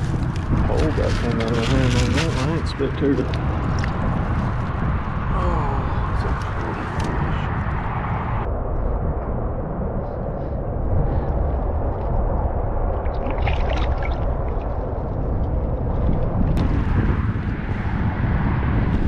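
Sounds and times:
wind rumbling on microphone: 0.0s - 19.0s
fish splashing at surface: 13.1s - 14.8s.

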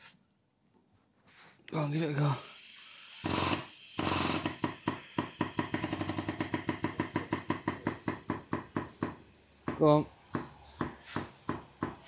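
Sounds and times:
hydraulic pump pulsing: 2.5s - 10.0s.

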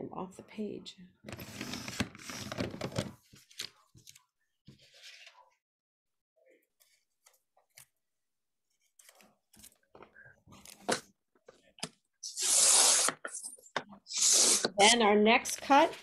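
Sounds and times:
paper trimmer swish: 12.2s - 13.3s.

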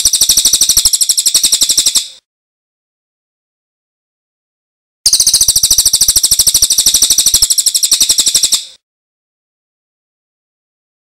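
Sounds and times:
bird rattling trill: 0.0s - 2.2s, 5.1s - 8.8s.

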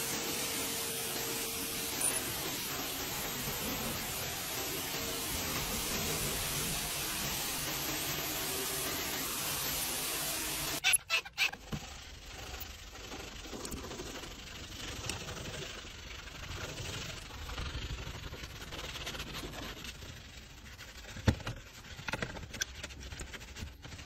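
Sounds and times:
pressure washer spraying water: 0.0s - 11.0s
brush scrubbing: 0.0s - 24.0s.

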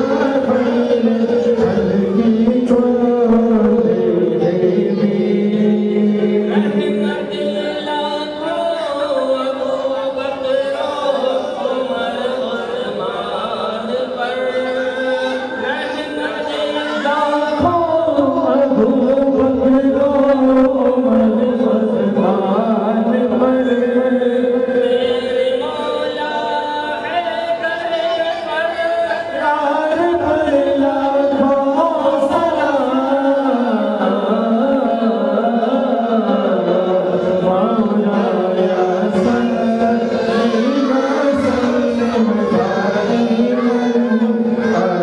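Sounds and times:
men singing devotional chant: 0.0s - 45.0s.

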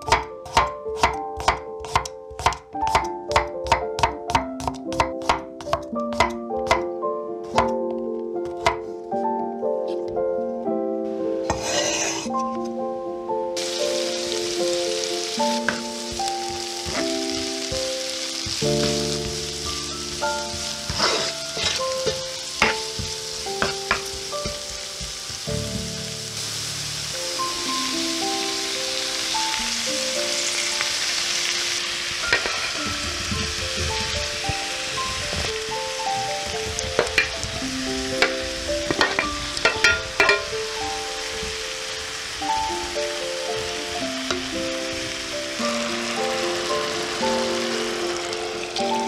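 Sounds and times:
onions sizzling in oil: 0.0s - 7.8s, 11.4s - 12.5s, 13.6s - 49.0s
spoon scraping and knocking pan: 0.0s - 7.8s, 8.4s - 8.9s, 11.4s - 12.6s, 15.6s - 17.6s, 18.4s - 25.9s, 32.2s - 34.2s, 36.2s - 37.5s, 38.2s - 40.5s.

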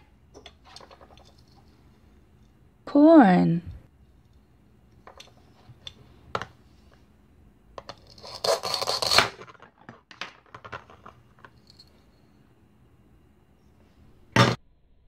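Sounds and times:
velcro ripping: 8.2s - 9.4s.

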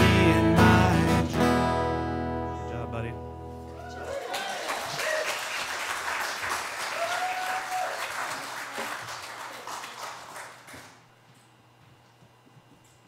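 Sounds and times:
congregation applauding: 3.8s - 11.0s
voices over clapping: 4.1s - 10.7s.

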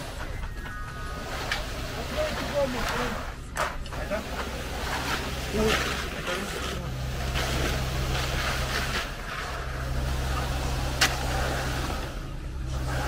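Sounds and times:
diesel pump engine running: 0.0s - 13.0s.

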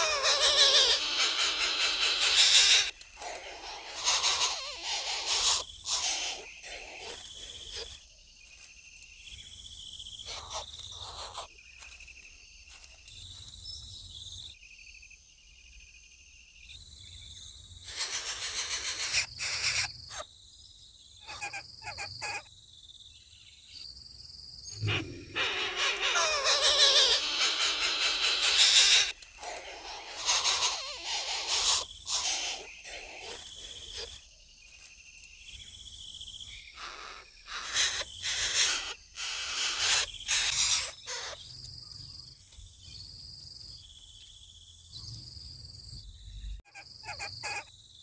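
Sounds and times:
bird calls: 0.0s - 11.9s, 17.8s - 20.3s, 21.2s - 22.5s, 24.6s - 42.2s, 46.2s - 47.7s
high insect drone: 0.0s - 48.0s.

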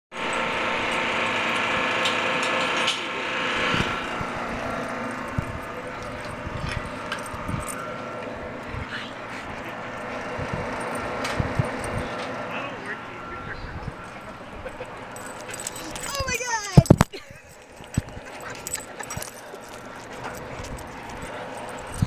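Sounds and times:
machine hum with whine: 0.1s - 22.0s
metal knocks and clinks: 5.2s - 8.3s, 10.4s - 12.4s, 14.1s - 22.0s.

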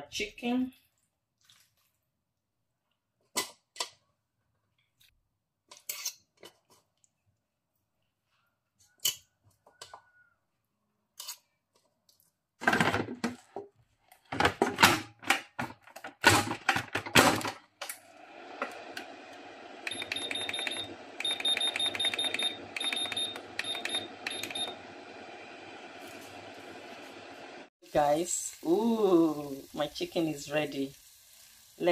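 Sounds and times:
clatter of food and lid: 12.6s - 13.5s
air fryer fan whirring: 16.4s - 30.9s
short high beeps: 19.9s - 24.8s.

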